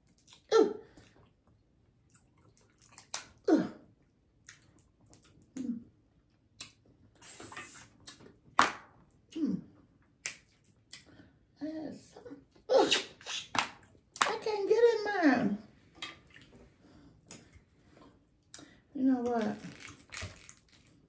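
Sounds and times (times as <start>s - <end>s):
wet chewing and smacking: 0.0s - 3.4s, 4.0s - 8.5s
hissing slurp: 7.2s - 8.0s, 12.8s - 13.6s.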